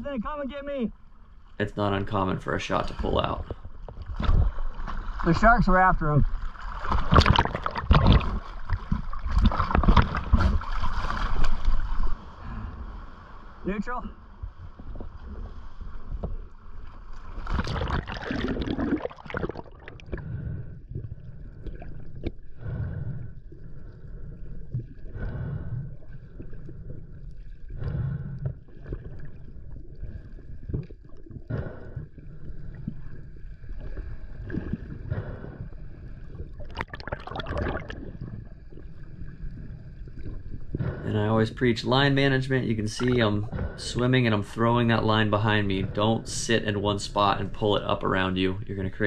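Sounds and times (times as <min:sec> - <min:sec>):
water splashing and gurgling underwater: 0:00.7 - 0:49.0.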